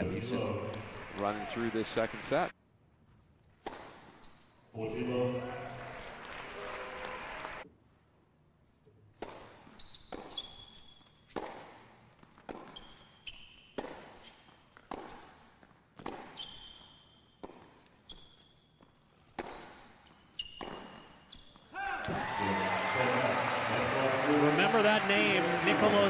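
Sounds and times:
shoes squeaking on court: 0:03.2 - 0:04.8, 0:08.7 - 0:21.8
tennis ball hit by rackets: 0:03.6 - 0:04.2, 0:11.3 - 0:12.8, 0:13.7 - 0:15.4, 0:16.0 - 0:16.4, 0:20.5 - 0:21.0.

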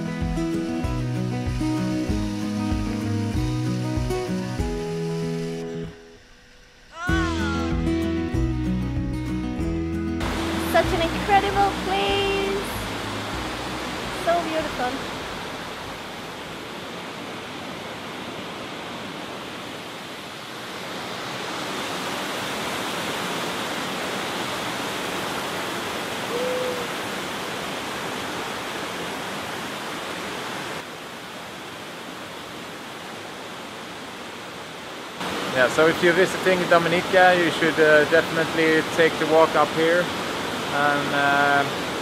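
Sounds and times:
waterfall rushing over rocks: 0:10.2 - 0:42.0.

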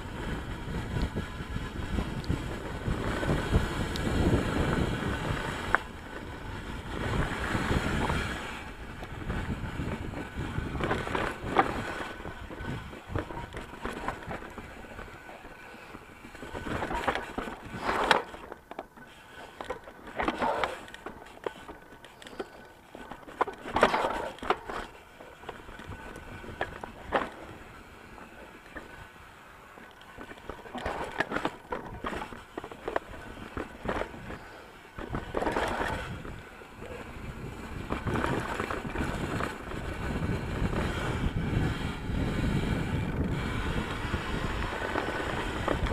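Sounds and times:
mountain bike tyres rolling on dirt: 0:00.0 - 0:45.9
bike clattering over rocks: 0:16.4 - 0:27.5, 0:30.0 - 0:34.4, 0:35.0 - 0:37.0.

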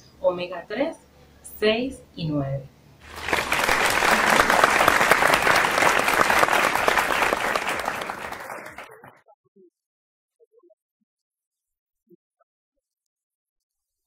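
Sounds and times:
audience applauding: 0:03.0 - 0:09.2.

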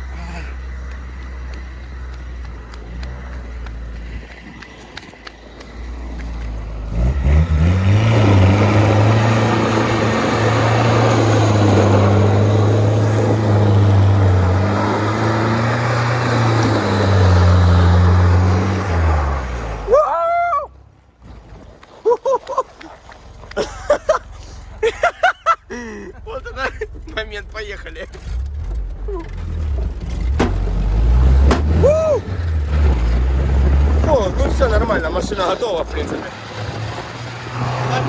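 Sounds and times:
engine revving high: 0:06.8 - 0:19.9, 0:36.4 - 0:38.0.

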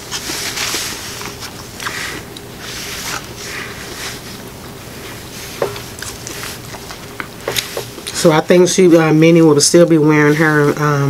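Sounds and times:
chewing: 0:00.1 - 0:08.2.

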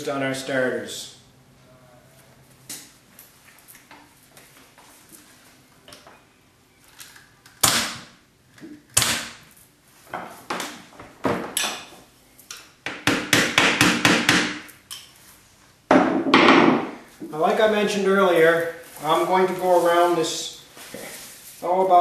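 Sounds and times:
knocks on chair frame: 0:15.9 - 0:17.0.

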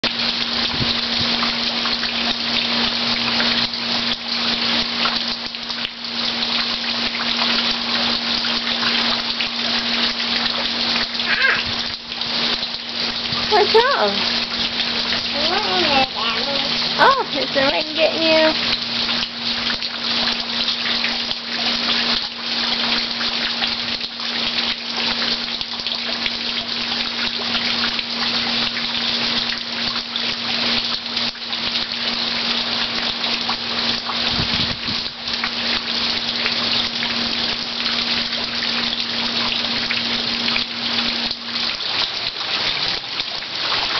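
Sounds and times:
heavy rain falling: 0:00.0 - 0:43.9
water streaming off roof: 0:00.0 - 0:43.9.

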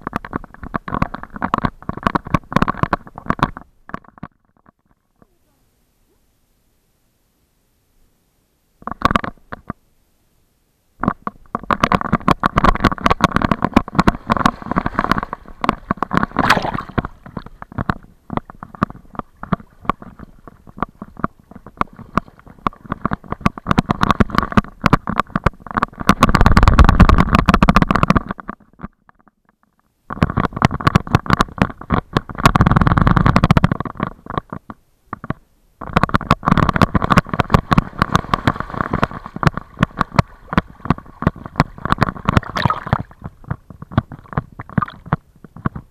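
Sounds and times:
water splashing and sloshing: 0:11.0 - 0:28.8, 0:35.9 - 0:45.9
dog shaking off water: 0:36.6 - 0:43.0.

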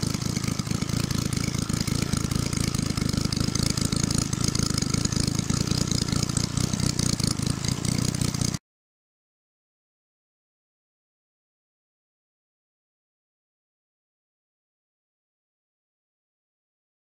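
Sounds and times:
model engine running: 0:00.0 - 0:08.6.

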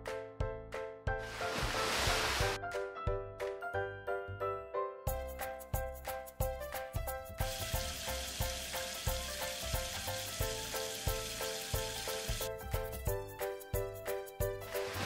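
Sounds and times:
water spraying hiss: 0:01.2 - 0:02.6, 0:07.4 - 0:12.5, 0:14.7 - 0:15.0
background music with steady beat: 0:05.1 - 0:15.0.

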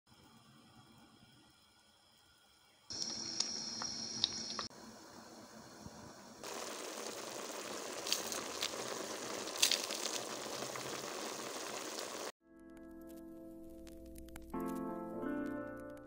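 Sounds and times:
meat sizzling in a pot: 0:06.4 - 0:12.3.

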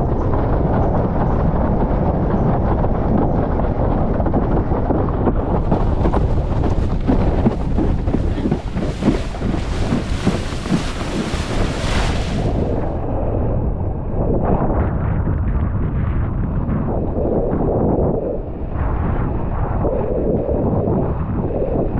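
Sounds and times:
wind buffeting microphone: 0:00.0 - 0:21.9
water rushing and hissing: 0:05.7 - 0:13.0.

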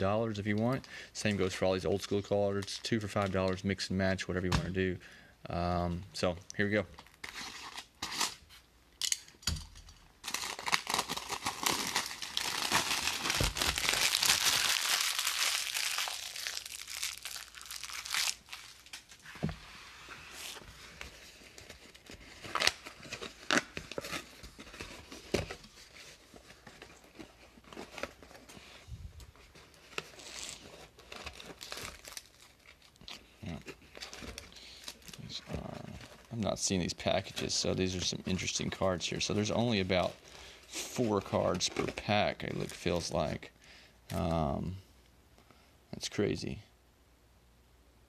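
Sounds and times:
cellophane tearing and crinkling: 0:07.0 - 0:08.6, 0:10.2 - 0:19.3, 0:20.3 - 0:28.5, 0:29.2 - 0:43.4
foil packs crinkling: 0:10.2 - 0:19.2, 0:29.4 - 0:43.4.

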